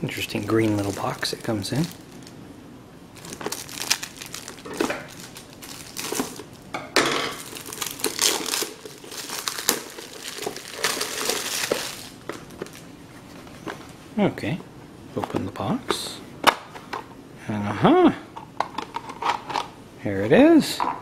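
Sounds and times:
plastic shrink wrap crinkling: 0.1s - 2.4s, 3.2s - 6.6s, 7.3s - 12.9s.

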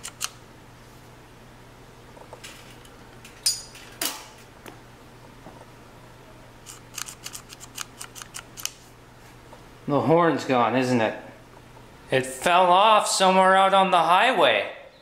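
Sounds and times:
steady low hum: 0.0s - 15.0s
sharp metallic clicks: 6.7s - 8.8s.

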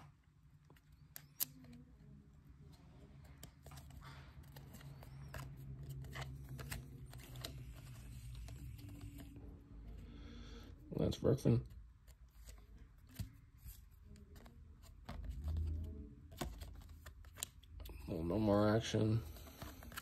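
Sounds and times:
cards sliding and clicking: 3.2s - 10.0s, 19.3s - 20.0s.

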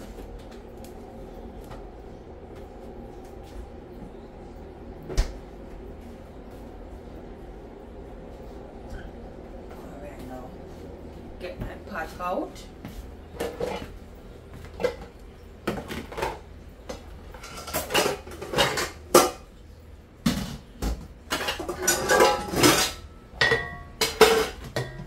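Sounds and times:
metal pots and dishes clattering: 13.4s - 14.0s, 14.7s - 19.5s, 20.3s - 25.0s.

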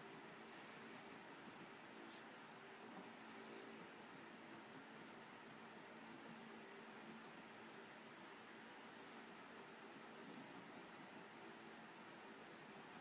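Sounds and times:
low steady hum: 0.0s - 13.0s
pencil scratching on sanded paper: 10.1s - 13.0s.

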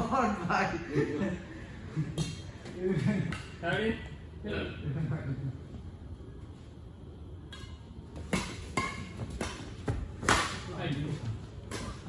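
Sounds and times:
rackets smacking shuttlecock: 7.4s - 10.7s, 11.6s - 12.0s.

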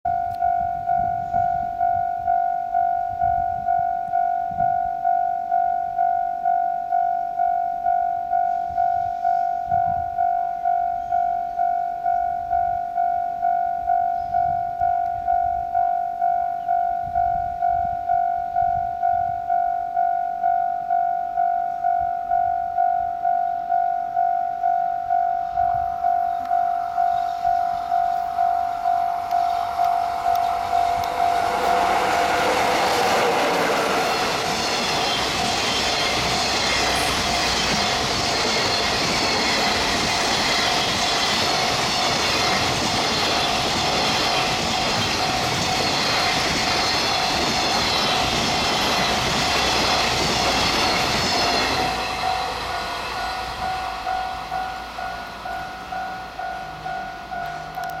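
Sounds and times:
crossing alarm bell ringing: 0.1s - 58.0s
freight train wagons clacking: 26.2s - 58.0s.

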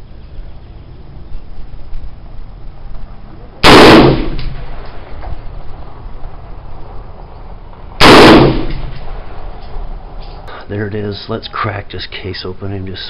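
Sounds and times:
rifle shots with echo: 3.6s - 5.4s, 8.0s - 9.6s.

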